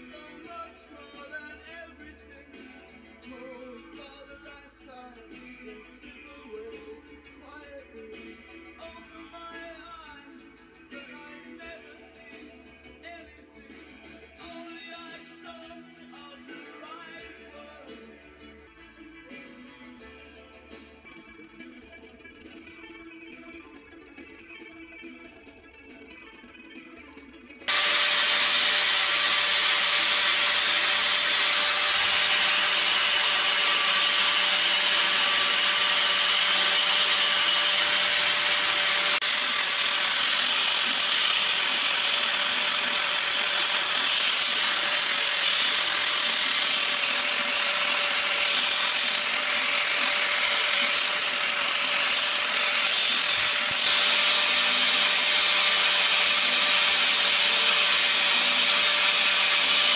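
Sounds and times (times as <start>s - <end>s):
electric sander whining: 27.7s - 59.9s.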